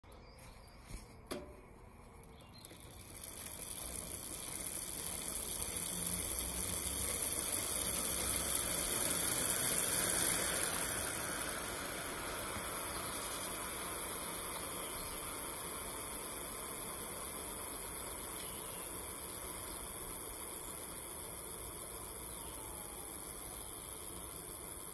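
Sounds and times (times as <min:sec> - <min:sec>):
bicycle wheel whirring: 0:00.0 - 0:24.9.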